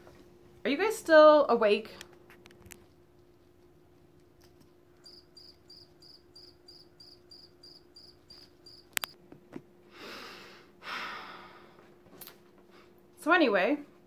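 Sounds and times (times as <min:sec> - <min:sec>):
cricket chirping: 0:05.0 - 0:09.2.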